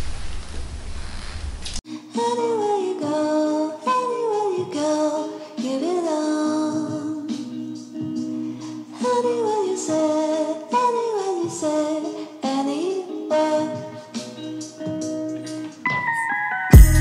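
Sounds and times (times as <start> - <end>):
steady hiss with low rumble: 0.0 - 1.8
background music with singing: 1.8 - 17.0.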